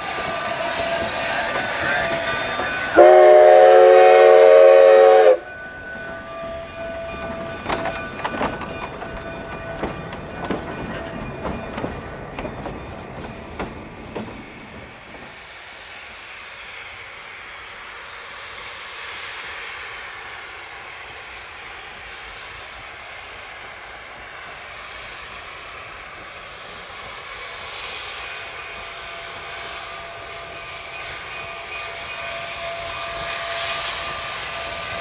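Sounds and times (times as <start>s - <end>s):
distant steam locomotive rumble and hiss: 0.0s - 35.0s.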